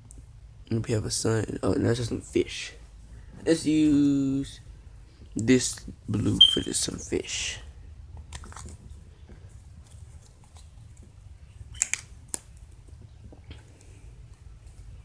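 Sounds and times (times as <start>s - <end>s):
hands handling modelling clay: 8.1s - 15.0s.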